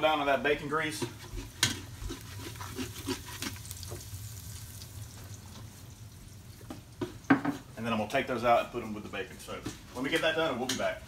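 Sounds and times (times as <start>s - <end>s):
eggs sizzling in grease: 0.0s - 11.0s
utensil scraping pot: 0.5s - 4.2s.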